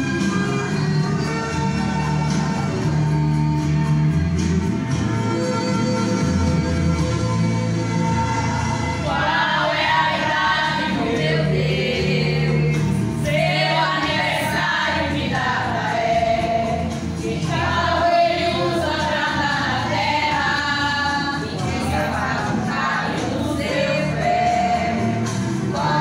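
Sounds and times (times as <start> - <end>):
low instrumental accompaniment: 0.0 - 26.0
women's choir singing a hymn: 8.0 - 26.0.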